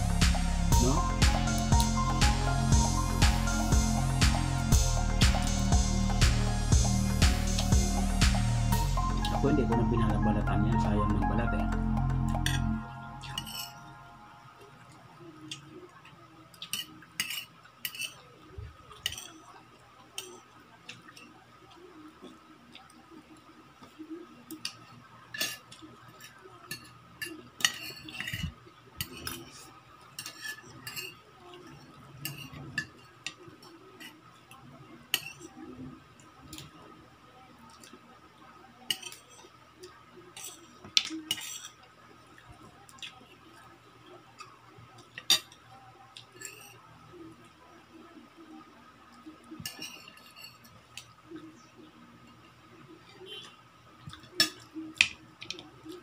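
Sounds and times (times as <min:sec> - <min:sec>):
cutlery scraping a ceramic plate: 0:13.3 - 0:13.8, 0:16.6 - 0:18.2, 0:26.7 - 0:29.6, 0:30.2 - 0:31.2, 0:41.3 - 0:41.8, 0:46.3 - 0:46.8.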